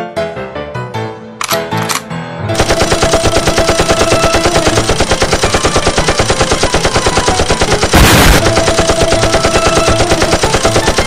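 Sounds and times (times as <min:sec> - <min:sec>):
machine gun firing: 0:02.6 - 0:11.0.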